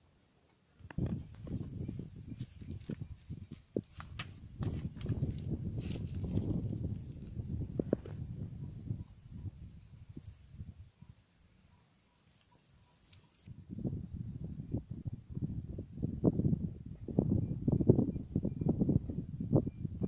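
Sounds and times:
low rustling and crunching: 0:00.8 - 0:08.2
insect chirping: 0:01.0 - 0:13.5.

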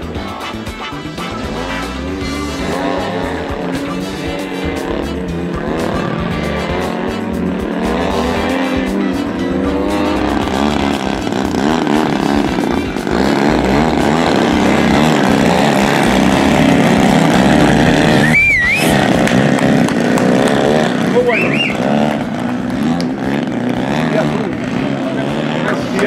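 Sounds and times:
model airplane engines revving: 0:00.0 - 0:26.0
warbling high tone: 0:17.8 - 0:19.3, 0:21.1 - 0:22.2.

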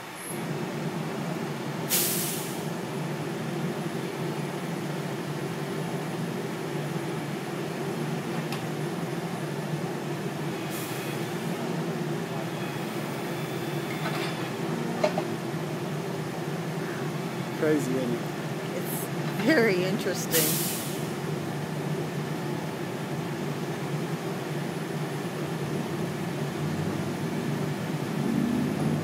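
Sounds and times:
diesel engine running: 0:00.0 - 0:29.0
short hydraulic hisses: 0:01.9 - 0:02.6, 0:20.3 - 0:21.1.

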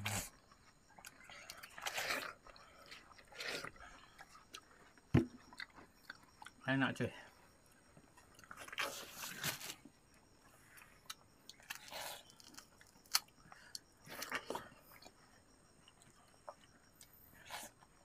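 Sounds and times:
wet chewing of watermelon: 0:00.0 - 0:06.7, 0:07.7 - 0:18.0.

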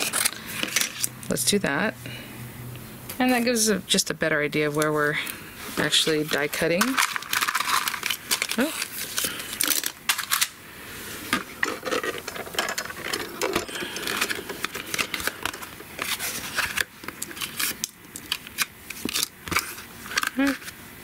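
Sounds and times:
plastic folder and paper handled: 0:00.0 - 0:01.1, 0:05.7 - 0:10.6, 0:11.3 - 0:20.8.

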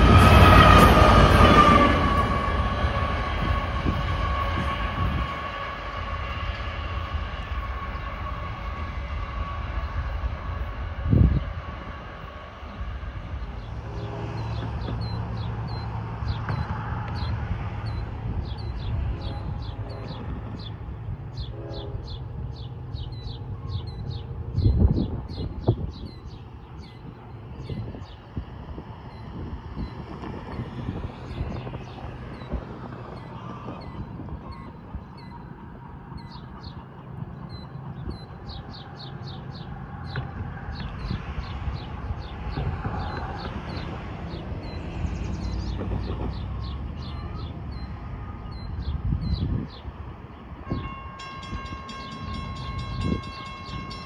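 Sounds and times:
bird chirping: 0:14.4 - 0:28.2, 0:29.1 - 0:35.5, 0:36.1 - 0:40.2
lower bird calls: 0:29.8 - 0:35.5.

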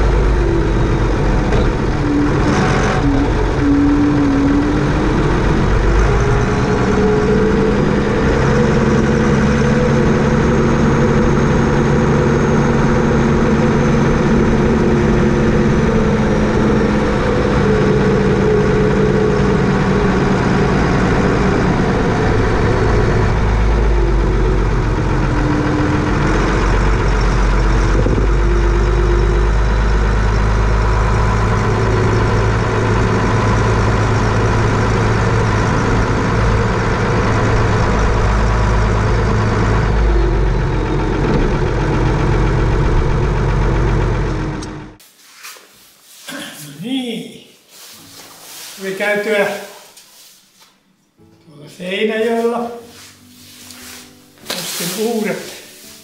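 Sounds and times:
vehicle engine running: 0:00.0 - 0:45.0.

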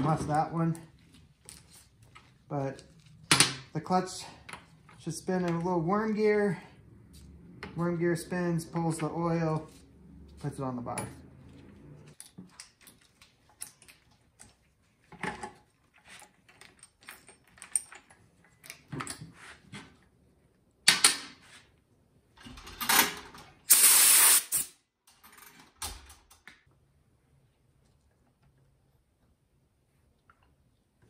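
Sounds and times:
loud steady hiss: 0:23.7 - 0:24.7.

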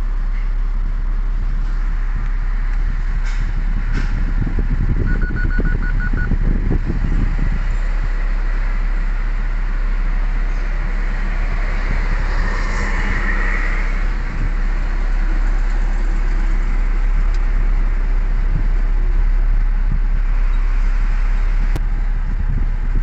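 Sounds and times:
engine and road rumble: 0:00.0 - 0:23.0.

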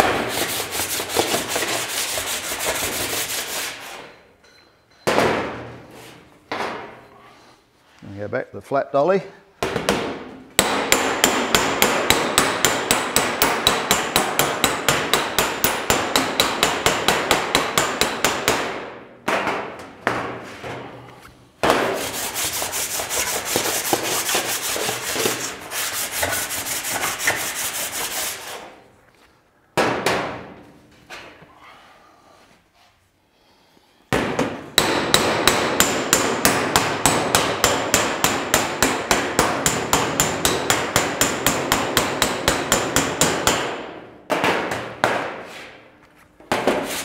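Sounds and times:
hammer striking steel panel: 0:09.6 - 0:20.4, 0:34.1 - 0:45.5.

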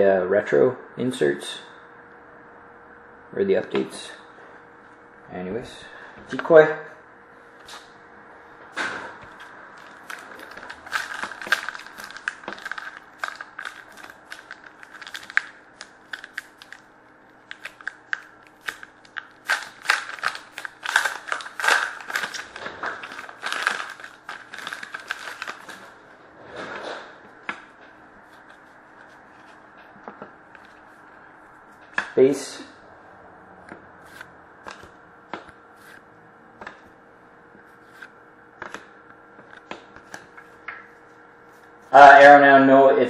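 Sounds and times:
faint steady hum: 0:00.0 - 0:43.0
cards being handled: 0:09.2 - 0:25.9, 0:27.5 - 0:31.2, 0:34.1 - 0:36.0, 0:37.6 - 0:41.8
wrapper crinkling and tearing: 0:09.8 - 0:26.0.

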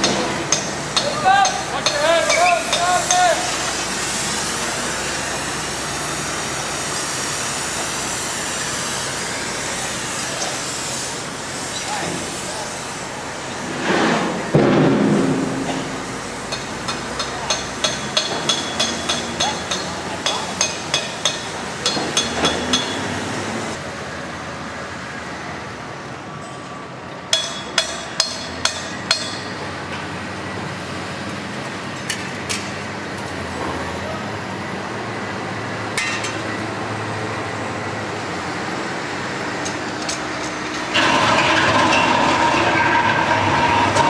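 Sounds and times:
hammer striking metal: 0:00.0 - 0:03.3, 0:14.6 - 0:23.1, 0:27.3 - 0:29.6.

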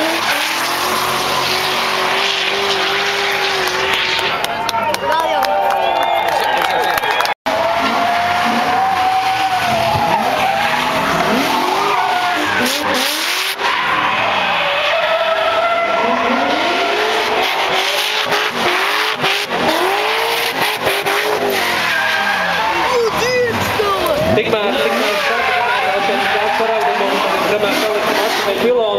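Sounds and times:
car engine revving: 0:00.0 - 0:04.8, 0:07.5 - 0:28.9
tyres squealing: 0:18.2 - 0:28.9.

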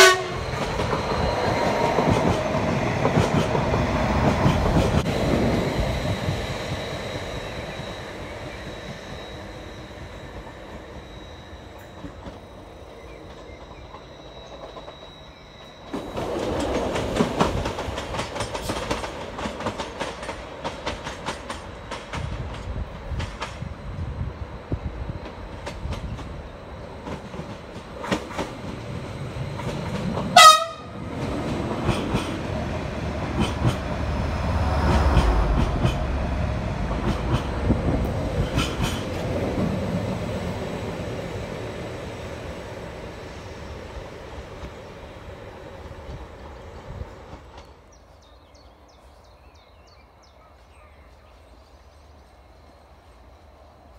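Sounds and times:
train horn toot: 0:00.0 - 0:00.7, 0:30.3 - 0:31.1
train wheels clicking over rail joints: 0:00.0 - 0:11.2, 0:11.8 - 0:24.1, 0:24.8 - 0:48.3
train rumble: 0:00.0 - 0:53.9.

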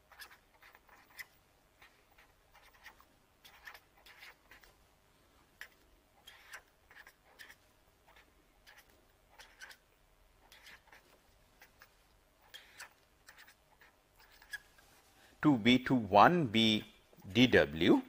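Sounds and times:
pen scratching on paper: 0:10.4 - 0:11.1.

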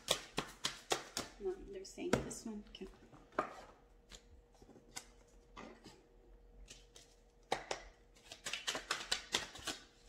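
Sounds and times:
cards being shuffled: 0:06.6 - 0:10.0.

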